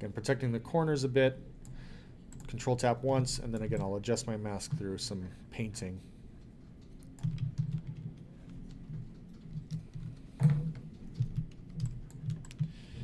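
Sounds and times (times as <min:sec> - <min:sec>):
computer input clicking and tapping: 0:06.4 - 0:12.8.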